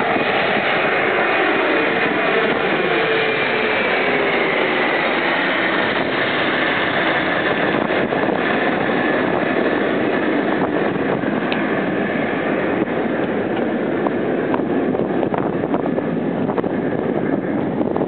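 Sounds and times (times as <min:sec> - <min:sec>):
jet aircraft passing overhead: 0:00.0 - 0:18.0.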